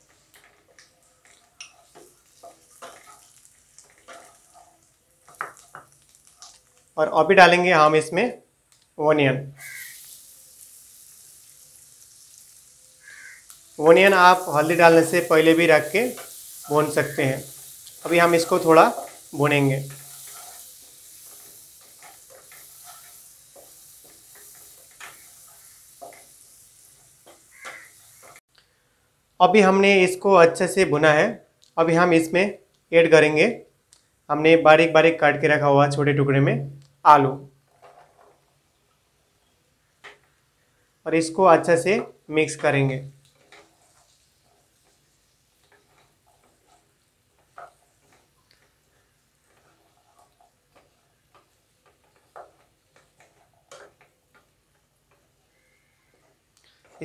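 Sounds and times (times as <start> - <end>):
onion sizzling in hot oil: 0.0 - 28.5, 39.8 - 57.0
wooden spatula scraping pan: 13.9 - 26.4, 42.0 - 57.0.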